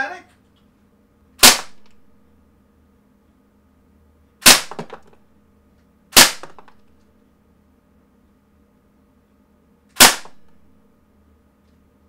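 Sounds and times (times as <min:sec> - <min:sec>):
bb gun shots: 0:01.4 - 0:02.0, 0:04.4 - 0:05.2, 0:06.1 - 0:06.9, 0:10.0 - 0:10.6.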